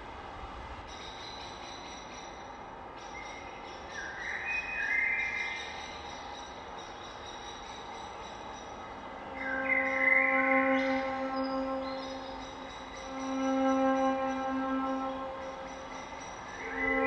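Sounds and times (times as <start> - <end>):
ambient electronic drone: 8.4 - 17.0.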